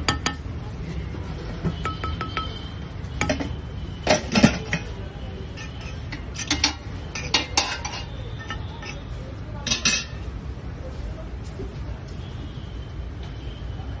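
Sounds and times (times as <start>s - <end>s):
metal spoon clinking on griddle: 3.2s - 10.3s.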